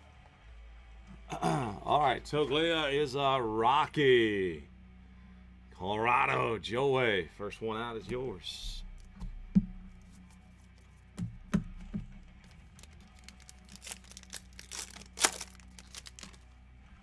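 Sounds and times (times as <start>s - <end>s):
plastic wrapper crinkling and tearing: 12.4s - 16.5s.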